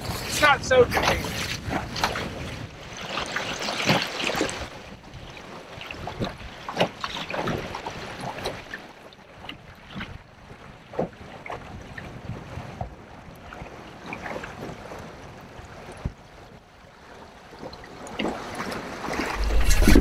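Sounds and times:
boat hull slapping waves: 0:00.0 - 0:20.0
rush of water and wind: 0:00.0 - 0:20.0
water splashing: 0:18.0 - 0:20.0.

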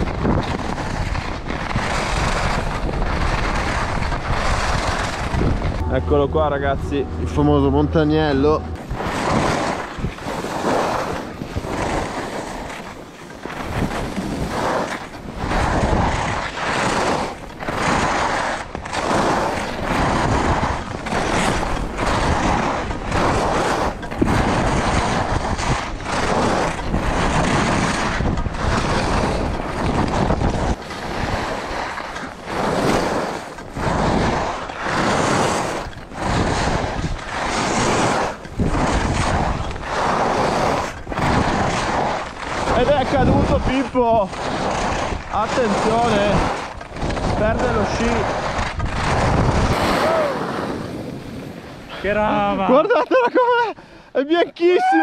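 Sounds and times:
wind rushing over microphone: 0:00.0 - 0:53.8
skis scraping over snow: 0:00.0 - 0:55.0.

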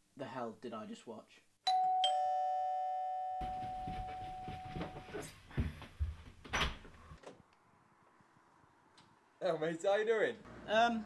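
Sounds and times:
doorbell chime: 0:01.7 - 0:05.2
footsteps on carpeted stairs: 0:03.4 - 0:07.2.

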